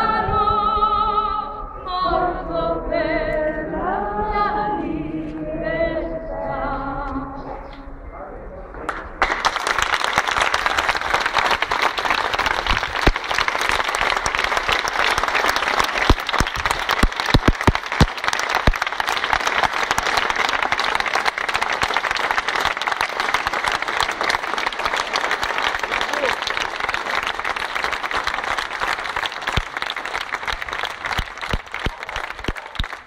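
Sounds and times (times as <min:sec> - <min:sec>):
sharp claps close by: 0:08.8 - 0:33.0
crowd applauding: 0:08.9 - 0:33.0.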